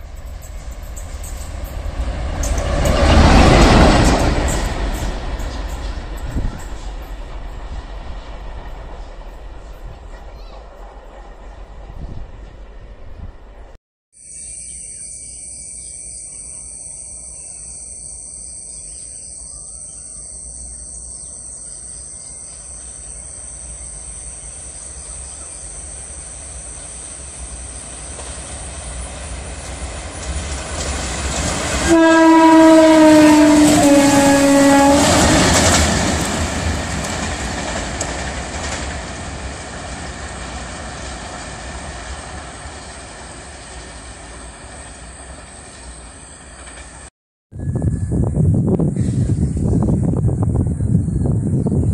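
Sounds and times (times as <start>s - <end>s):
locomotive rumble: 0.0s - 13.8s, 23.9s - 51.9s
locomotive horn: 31.8s - 36.0s.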